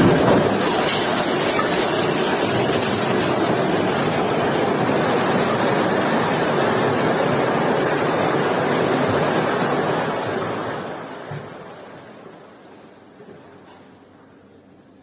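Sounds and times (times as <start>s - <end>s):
debris and dust pouring down: 0.0s - 8.1s.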